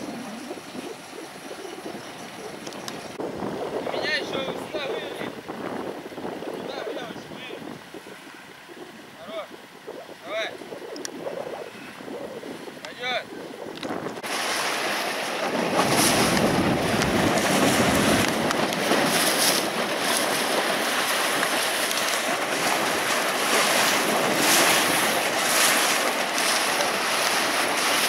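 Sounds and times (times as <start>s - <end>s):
water rushing along a hull: 0.0s - 28.0s
wind buffeting microphone: 0.0s - 28.0s.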